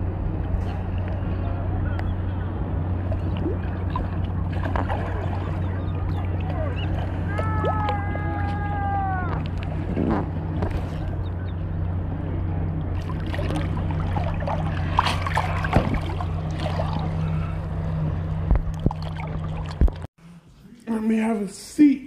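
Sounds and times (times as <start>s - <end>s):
motorboat engine drone: 0.0s - 20.6s
water sloshing and splashing: 2.9s - 11.9s, 12.6s - 20.1s.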